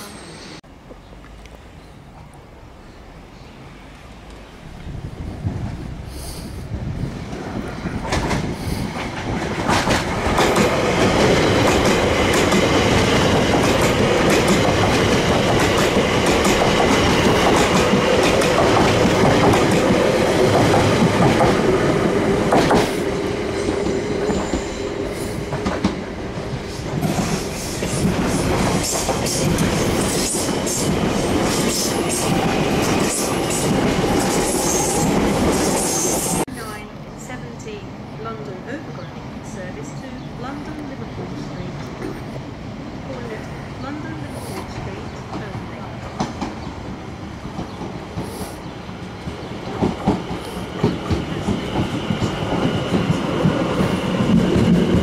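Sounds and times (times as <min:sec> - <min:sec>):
train wheels clattering on rails: 0:07.3 - 0:36.4, 0:43.2 - 0:48.5, 0:49.2 - 0:55.0.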